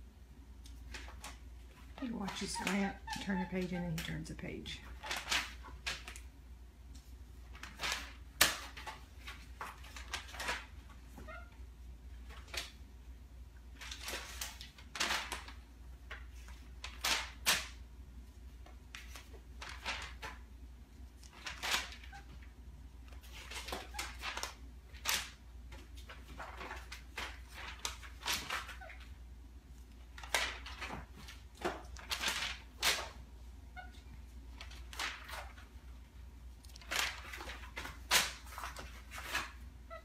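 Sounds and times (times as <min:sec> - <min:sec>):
pages being turned: 0:00.6 - 0:04.2, 0:04.8 - 0:06.3, 0:07.0 - 0:11.3, 0:13.8 - 0:17.8, 0:18.4 - 0:20.5, 0:21.1 - 0:22.5, 0:23.1 - 0:29.1, 0:29.7 - 0:33.2, 0:34.5 - 0:35.8, 0:36.6 - 0:39.6.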